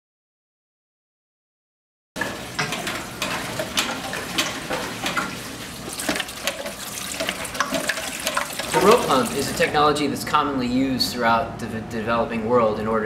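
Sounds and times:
water pouring into a metal bowl: 0:02.2 - 0:09.7.

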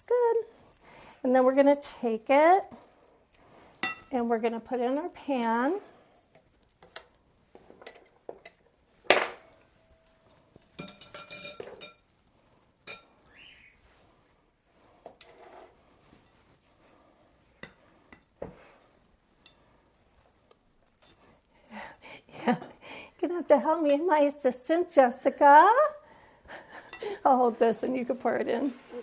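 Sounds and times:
glass bowls clinking: 0:10.8 - 0:12.0.

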